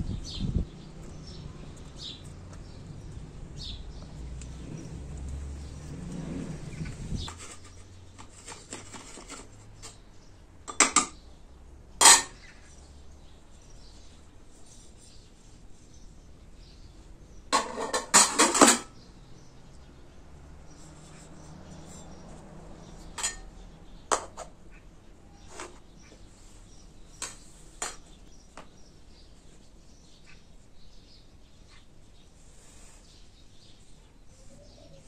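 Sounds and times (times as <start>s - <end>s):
metal pot and tray clanking: 12.0s - 12.4s, 17.5s - 19.0s, 23.2s - 23.5s.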